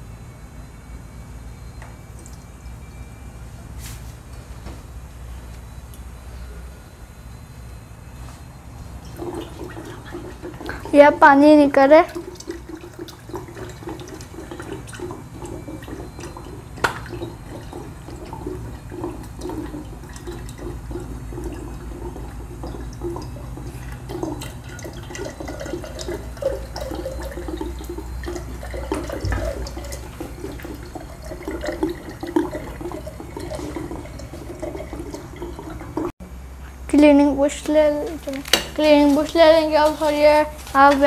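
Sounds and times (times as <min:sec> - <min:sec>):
water splashing into a glass jug: 0:09.1 - 0:36.1.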